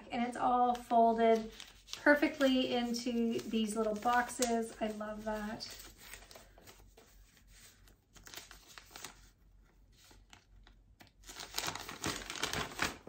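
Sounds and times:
paper crinkling and rustling: 0.5s - 13.0s.

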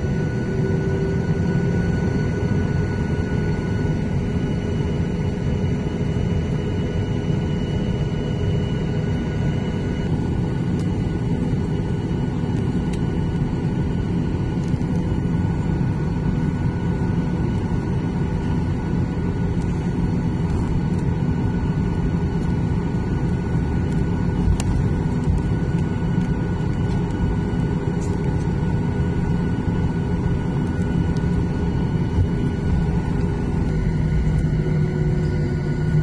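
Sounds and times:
jet engines rumbling with faint whine: 0.0s - 36.0s.

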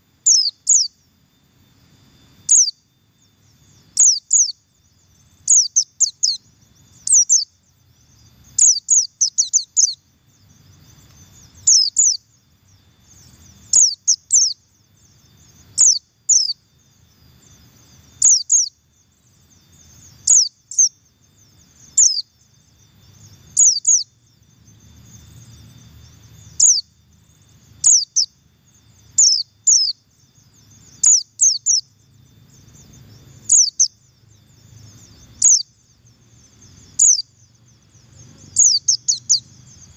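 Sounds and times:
bird giving high double calls: 11.6s - 12.2s, 13.7s - 14.6s, 18.2s - 18.7s, 33.5s - 33.9s, 35.4s - 35.7s, 37.0s - 37.3s.

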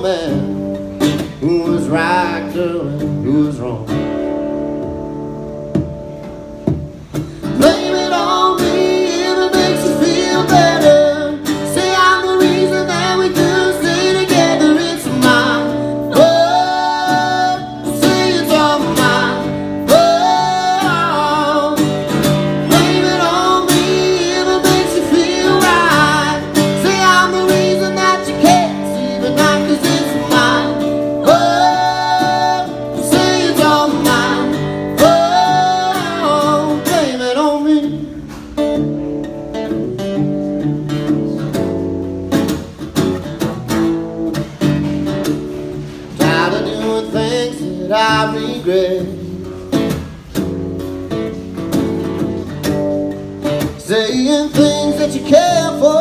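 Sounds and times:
strummed acoustic guitar: 0.0s - 56.0s
man and woman singing: 7.4s - 38.2s, 46.1s - 49.5s, 53.6s - 56.0s.

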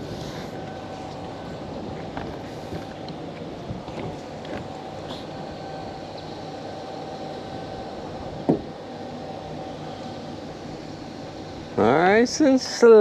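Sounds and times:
boat motor rumbling: 0.0s - 13.0s.

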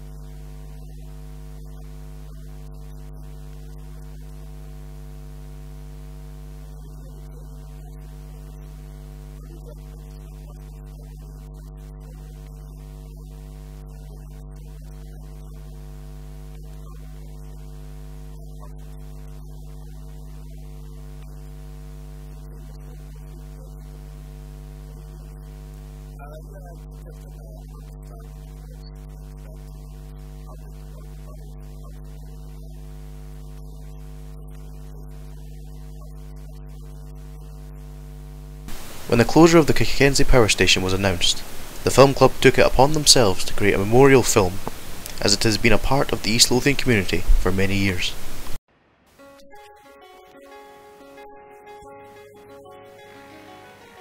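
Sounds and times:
electrical mains hum: 0.0s - 54.0s.

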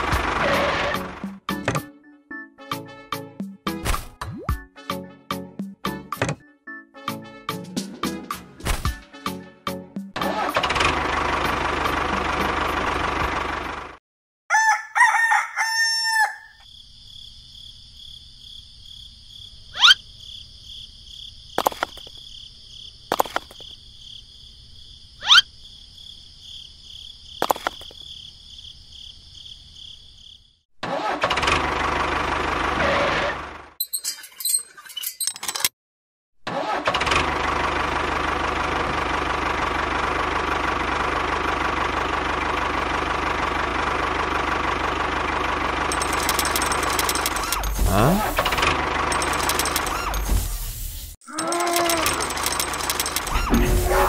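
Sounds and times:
tractor engine running: 0.0s - 1.7s, 10.2s - 14.0s, 31.3s - 32.8s, 36.8s - 54.0s
rooster crowing: 14.5s - 16.6s
small bricks clicking down: 21.6s - 22.2s, 23.1s - 23.7s, 27.4s - 28.0s, 51.4s - 53.5s.

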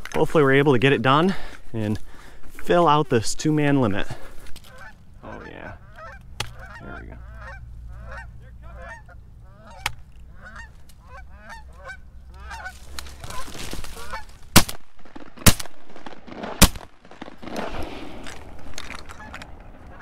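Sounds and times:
geese honking: 3.7s - 14.6s, 18.9s - 20.0s
shotgun shots: 14.5s - 19.3s.

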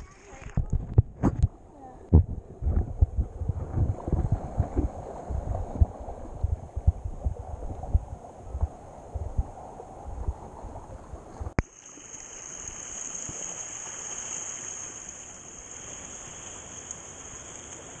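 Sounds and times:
water thumping against camera: 0.0s - 9.5s
shallow surf hiss: 11.7s - 18.0s.

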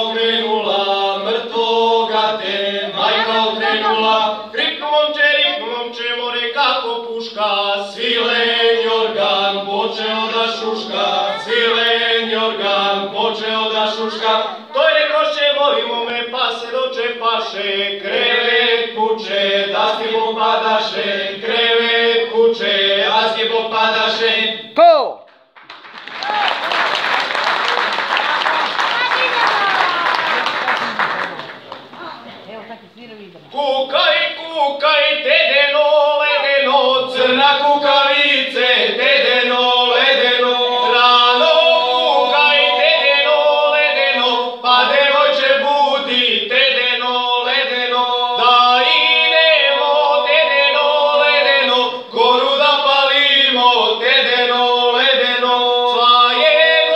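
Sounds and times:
men singing folk song: 0.0s - 24.7s, 33.5s - 56.9s.

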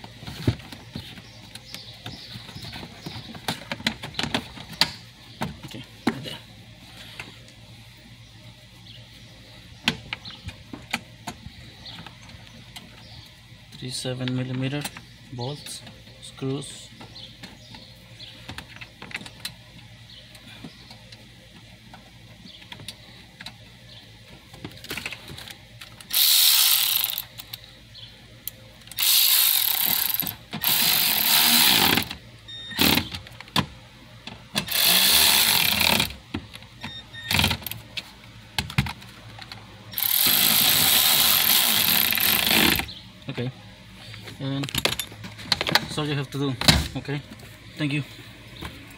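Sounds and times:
electric ratchet running: 26.1s - 27.6s, 28.9s - 32.2s, 32.8s - 33.1s, 34.6s - 36.2s, 39.9s - 42.9s.

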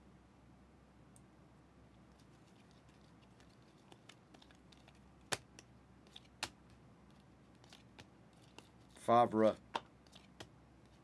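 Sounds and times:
cards being flipped: 2.2s - 9.0s, 9.7s - 11.0s.

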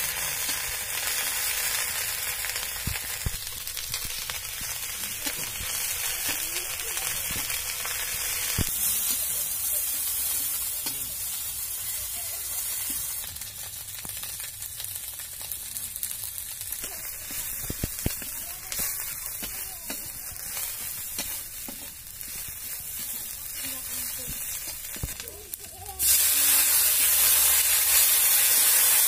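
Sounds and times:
onions sizzling in hot oil: 0.0s - 29.0s
metal spatula scraping: 16.9s - 27.4s.

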